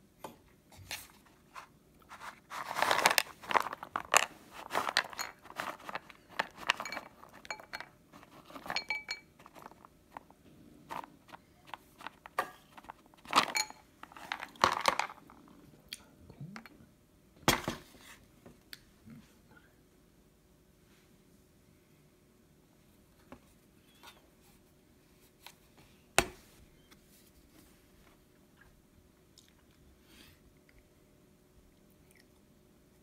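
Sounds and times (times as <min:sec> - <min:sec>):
almonds rattling in plastic tub: 0:02.6 - 0:07.5, 0:13.3 - 0:15.2.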